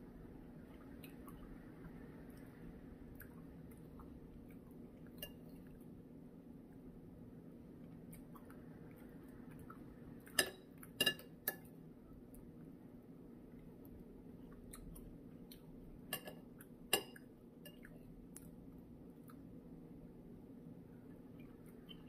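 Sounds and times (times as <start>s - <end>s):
low steady hum: 0.0s - 22.0s
spoon clinking against bowl: 10.4s - 11.6s, 16.1s - 17.8s.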